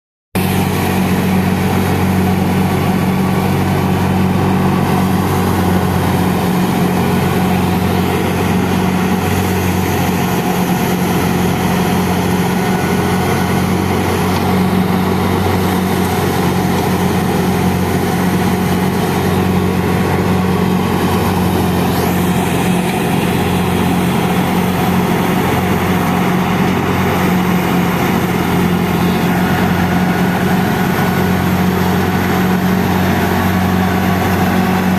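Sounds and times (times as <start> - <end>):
tractor driving threshing machine: 0.4 - 34.9.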